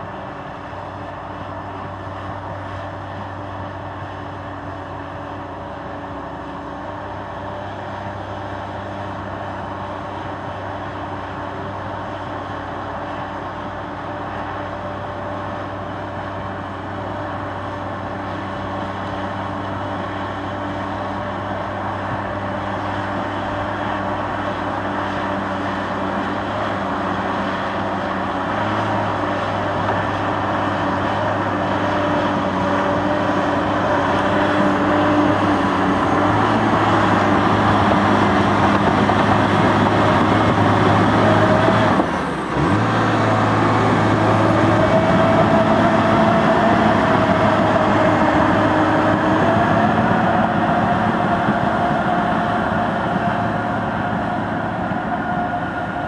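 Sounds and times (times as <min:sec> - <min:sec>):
bulldozer diesel engine under load: 0:00.0 - 0:56.0
wavering whine: 0:43.3 - 0:56.0.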